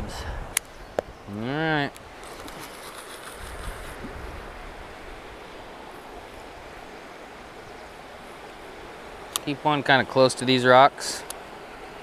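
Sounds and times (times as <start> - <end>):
wind on microphone: 0.0 - 1.4, 2.0 - 9.0
river current rushing: 0.0 - 12.0
fishing line running off reel: 2.2 - 4.2.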